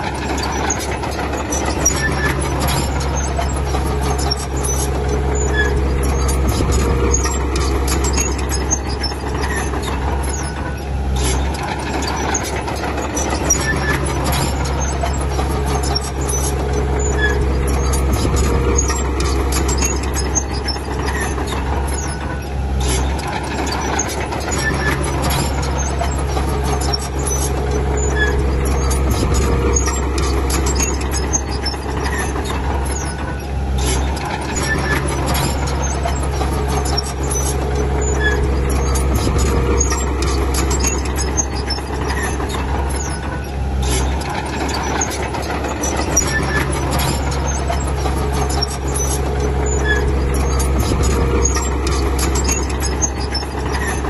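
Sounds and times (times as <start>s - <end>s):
heavy machinery diesel engines: 0.0s - 54.0s
metallic clanks and squeaks: 0.0s - 54.0s.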